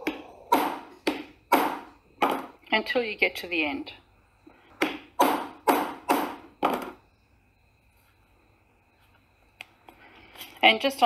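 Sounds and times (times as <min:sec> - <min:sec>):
hammer striking metal punch: 0:04.8 - 0:06.4.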